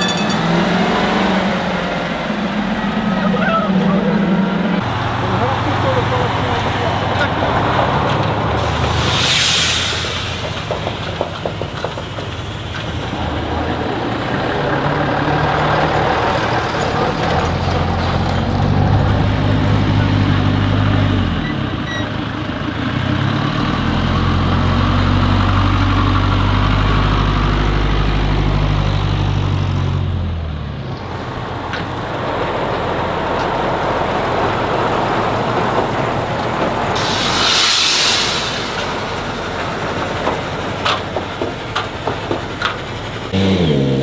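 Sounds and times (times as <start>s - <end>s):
truck diesel engine pulling hard: 0.0s - 44.0s
short hiss: 8.7s - 10.8s, 37.0s - 39.4s.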